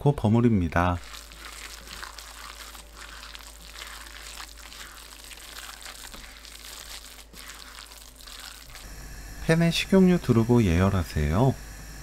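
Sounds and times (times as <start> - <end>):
hand squishing wet batter: 0.8 - 8.9.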